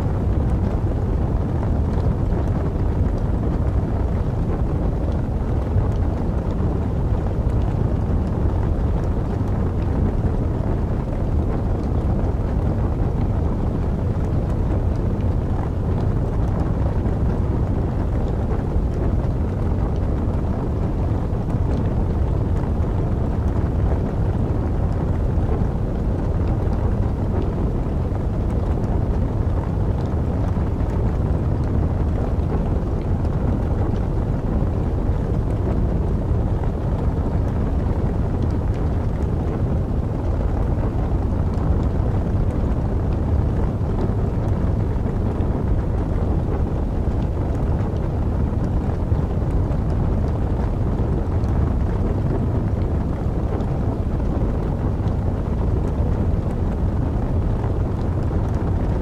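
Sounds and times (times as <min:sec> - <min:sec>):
wind rumbling: 0:00.0 - 0:59.0
burning logs crackling: 0:18.8 - 0:50.8.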